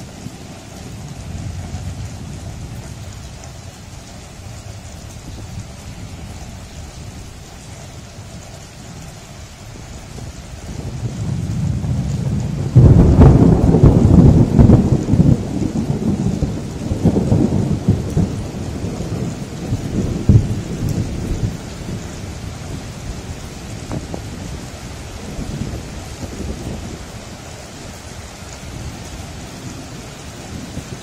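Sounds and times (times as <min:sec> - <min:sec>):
heavy rain falling: 0:00.0 - 0:31.0
thunder crashing and rumbling: 0:10.2 - 0:27.2.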